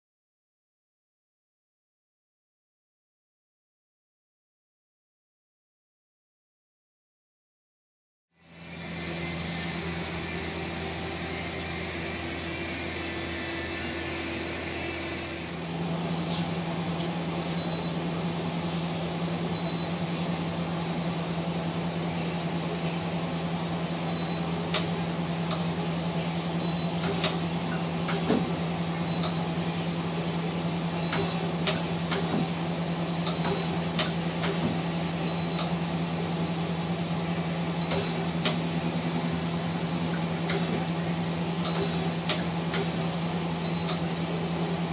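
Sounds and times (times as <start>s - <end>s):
lathe machine hum: 8.4s - 26.6s.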